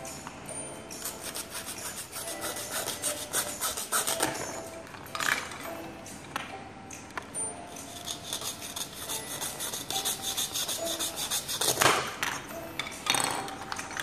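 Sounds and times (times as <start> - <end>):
toy knife sawing scratchy rasp: 1.0 - 4.2, 8.0 - 11.8.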